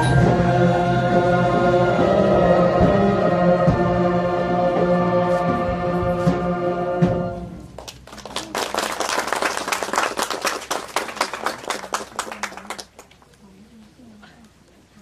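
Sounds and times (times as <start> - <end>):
ensemble holding a chord: 0.0 - 7.7
audience applause: 7.8 - 13.2.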